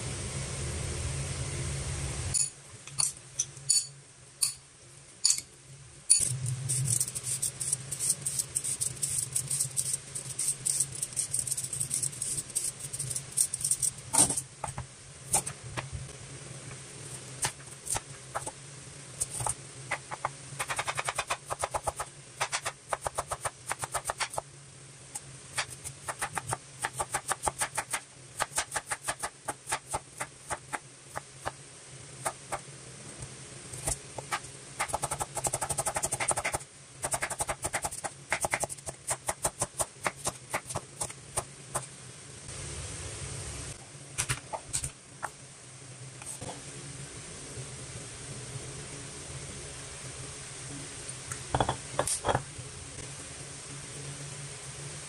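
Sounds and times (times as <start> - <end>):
clinks in ceramic bowl: 2.4 - 4.6, 5.2 - 5.5
knife chopping carrot on board: 34.2 - 40.9.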